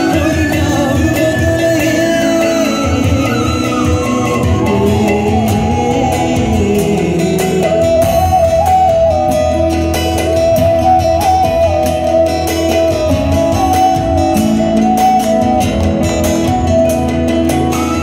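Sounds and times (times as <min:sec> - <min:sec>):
keyboard accompaniment: 0:00.0 - 0:18.0
lead melody: 0:00.0 - 0:18.0
live worship band music: 0:00.0 - 0:18.0.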